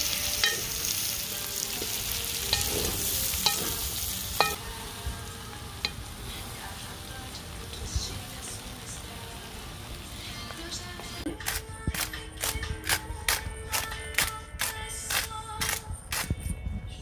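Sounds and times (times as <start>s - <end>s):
food sizzling in a pot: 0.0s - 11.2s.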